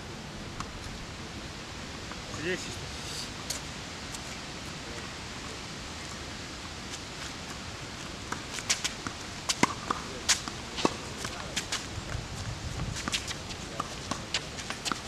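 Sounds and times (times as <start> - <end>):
steady hiss: 0.0 - 15.0
footsteps on court: 7.2 - 15.0
tennis ball bouncing on court: 8.3 - 11.7, 13.0 - 15.0
tennis ball struck by rackets: 9.5 - 11.0.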